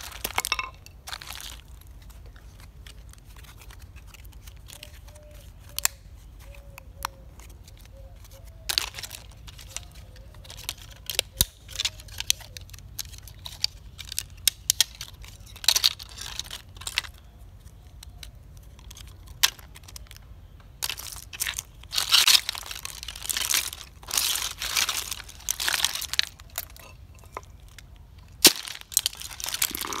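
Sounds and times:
plastic toy cracking and snapping: 8.7 - 17.2.

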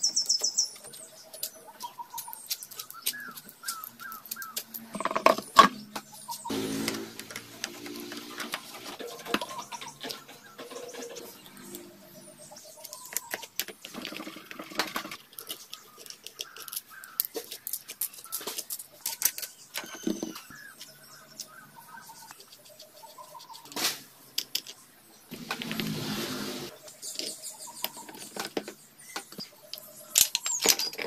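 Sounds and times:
bird chirps: 0.0 - 14.0, 15.4 - 23.8, 26.7 - 31.0
metallic clicks and clinks: 0.2 - 5.8, 29.7 - 31.0.

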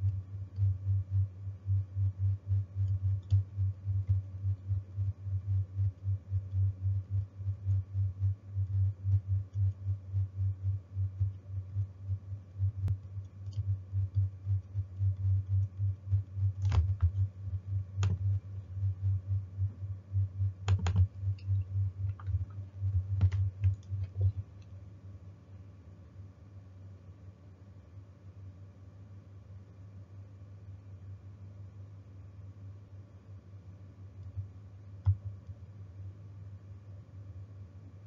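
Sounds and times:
muffled tapping at a desk: 20.6 - 24.4
sharp clicks: 20.6 - 24.4.

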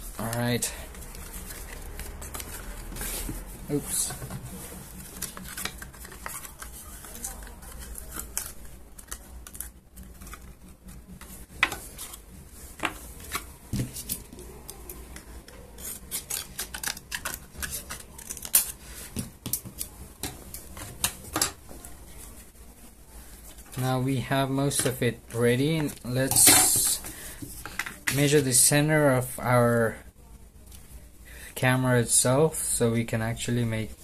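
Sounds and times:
cardboard rustling: 0.0 - 20.0.

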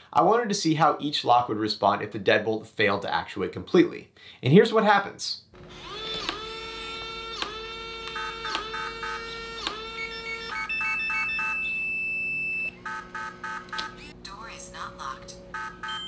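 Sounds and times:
lock motor whirring: 5.6 - 14.2
electronic beeping: 6.8 - 16.0.

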